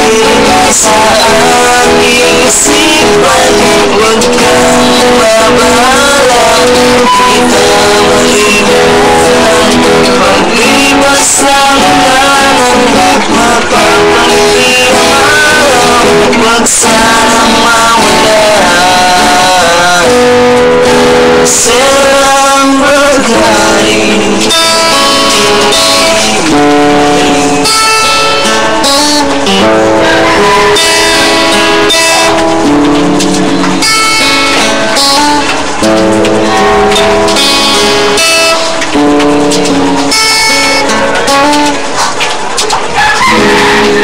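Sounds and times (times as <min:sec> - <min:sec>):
man singing: 0:00.0 - 0:32.4
acoustic guitar: 0:00.0 - 0:44.0.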